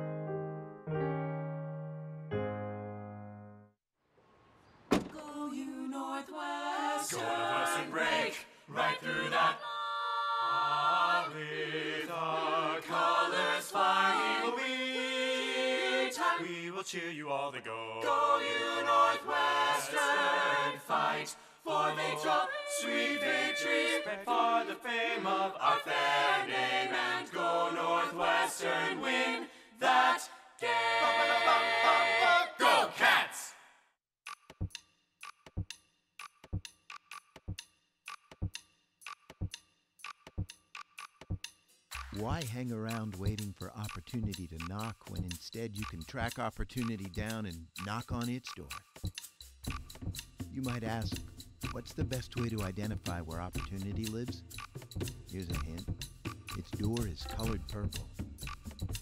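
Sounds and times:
group singing a cappella: 5.5s - 33.6s.

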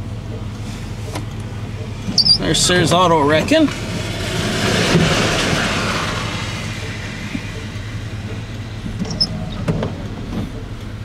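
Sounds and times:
low engine hum: 0.0s - 11.0s
truck tyres hissing on wet pavement: 2.4s - 9.3s.

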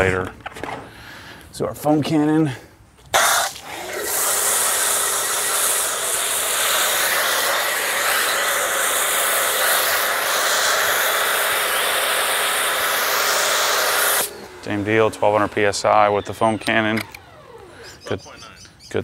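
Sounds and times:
foam spray hissing: 3.2s - 14.4s
pressure washer motor humming: 3.2s - 18.4s.

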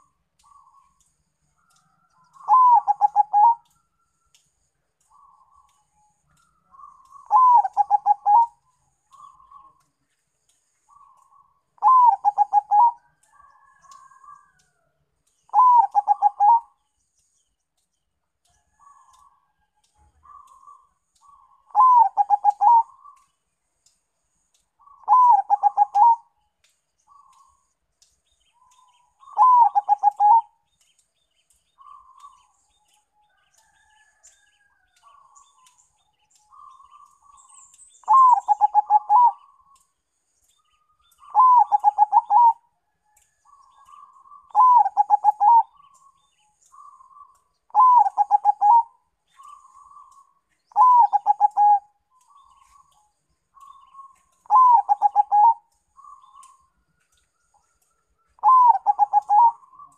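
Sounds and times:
dove cooing song: 1.7s - 3.8s, 5.1s - 9.9s, 10.9s - 14.7s, 15.5s - 16.8s, 20.0s - 23.3s, 24.5s - 26.4s, 28.6s - 30.6s, 36.4s - 39.9s, 41.1s - 56.7s, 57.6s - 59.9s
soft single dove coos: 58.4s - 59.6s.

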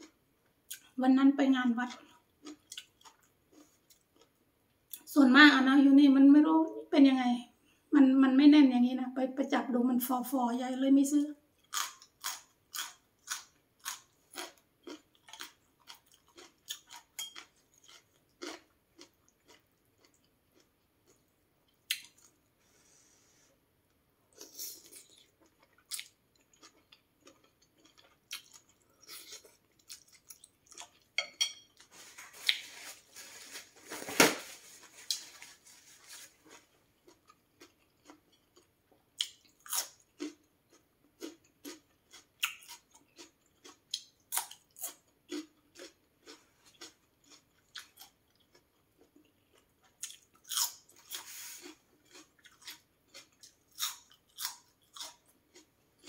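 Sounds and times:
person chewing food: 1.9s - 5.0s, 11.6s - 23.4s, 24.3s - 33.0s, 34.9s - 56.0s.

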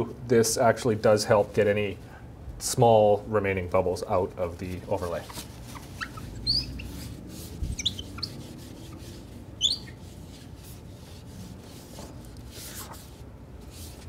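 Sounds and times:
tissue rubbing on plastic screen: 4.6s - 14.0s
short high squeaks: 5.2s - 9.0s, 9.6s - 10.0s.

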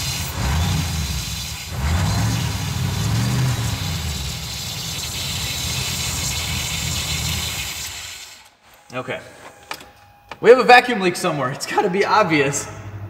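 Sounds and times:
car engine idling: 0.0s - 8.1s
vacuum leak hiss: 0.0s - 8.4s.

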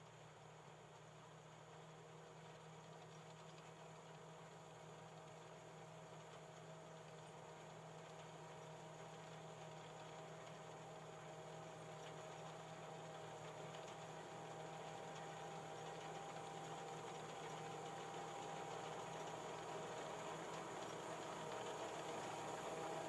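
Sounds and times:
combine harvester running: 11.5s - 23.0s.

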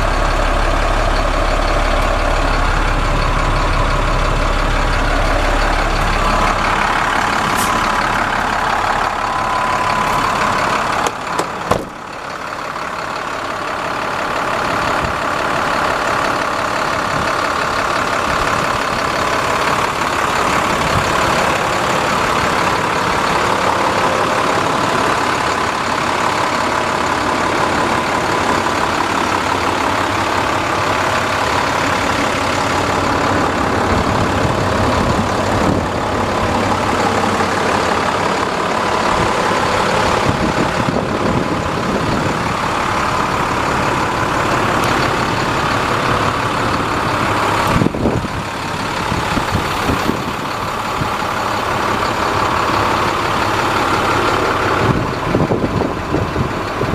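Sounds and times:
diesel truck engine idling: 0.0s - 56.9s
sharp knocks: 11.0s - 12.0s.

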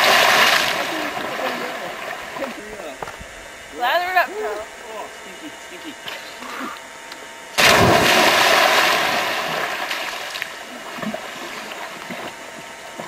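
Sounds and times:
water splashing and churning: 0.0s - 2.8s, 7.6s - 13.0s.

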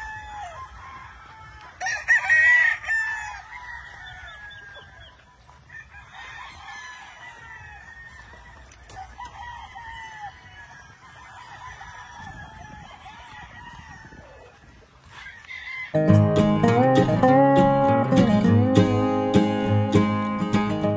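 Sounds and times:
roosters crowing: 0.0s - 20.5s
chickens clucking: 12.2s - 20.9s
acoustic guitar music: 16.0s - 20.9s.

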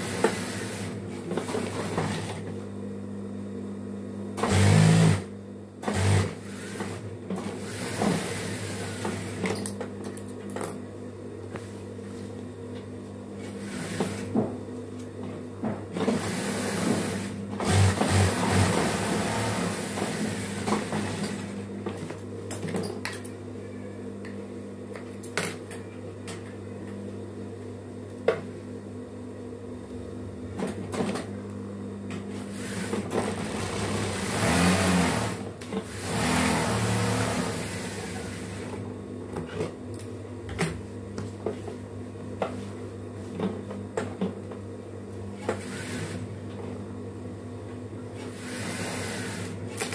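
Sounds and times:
sewing machine stitching: 4.4s - 9.5s, 16.0s - 21.5s, 32.5s - 38.7s.

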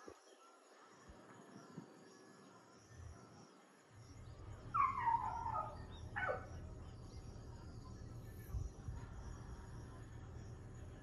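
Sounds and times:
low steady rumble: 4.0s - 11.0s
domestic animal calling: 4.7s - 6.6s.

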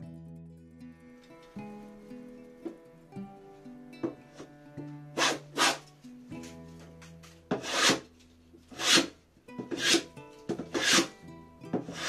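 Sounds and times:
hand plane shaving wood: 4.0s - 5.9s, 7.5s - 12.0s.

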